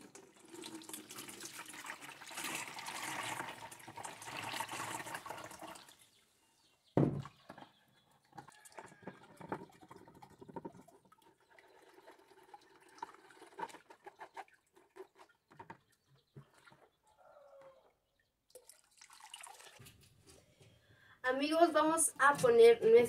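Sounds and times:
faint clucking calls: 15.2s - 18.3s.

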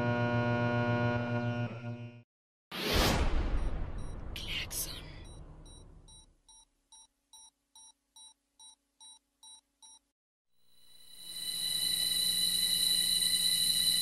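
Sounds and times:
short electronic beeps: 5.2s - 10.0s.

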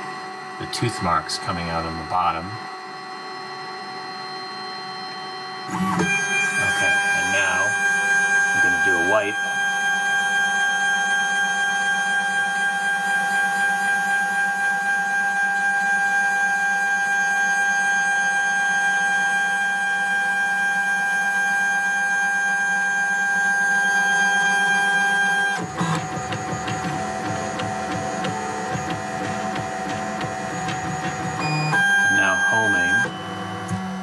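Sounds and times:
three d printer whining: 5.7s - 15.9s, 23.4s - 34.0s
printer mechanism clicking: 25.6s - 31.4s.

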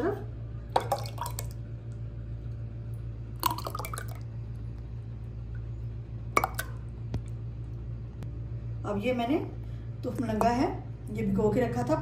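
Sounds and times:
low hum: 0.0s - 12.0s
liquid pouring into glass: 0.8s - 1.6s, 3.4s - 4.3s, 6.4s - 6.8s.

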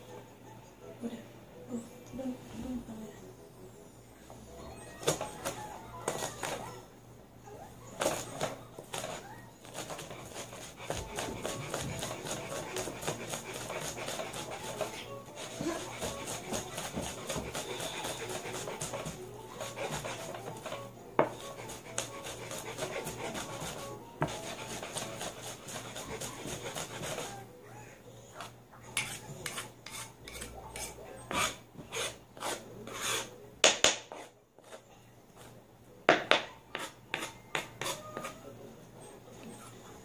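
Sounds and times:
pestle grinding garlic: 8.0s - 27.3s
pestle knocking on board: 15.5s - 19.2s.

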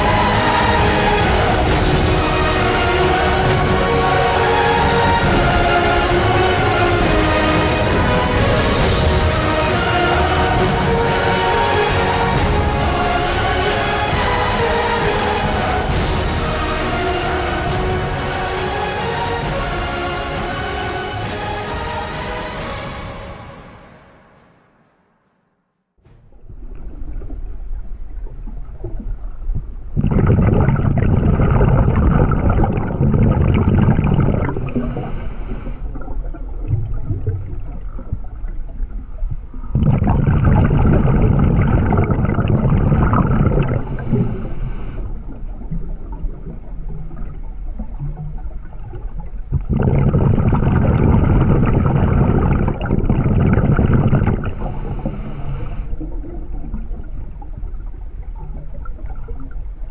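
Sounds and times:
exhaled bubbles rushing: 0.0s - 21.3s, 26.2s - 59.9s
regulator inhale hiss: 34.5s - 35.9s, 43.8s - 45.2s, 54.4s - 56.0s.

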